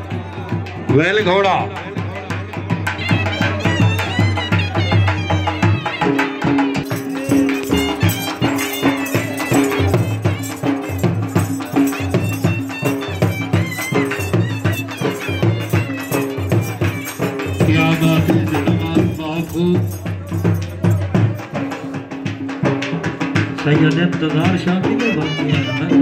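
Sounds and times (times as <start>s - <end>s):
steady drumming: 0.0s - 26.0s
long held melody line: 2.9s - 22.0s.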